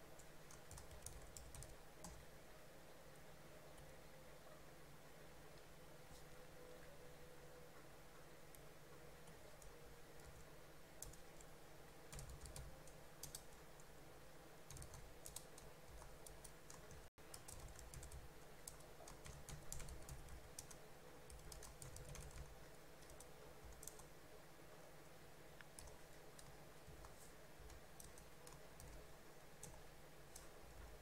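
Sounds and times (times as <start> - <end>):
low steady hum: 0.0 - 31.0
computer keyboard typing: 0.2 - 2.2, 11.0 - 11.5, 12.1 - 13.9, 14.7 - 24.1, 25.6 - 29.0.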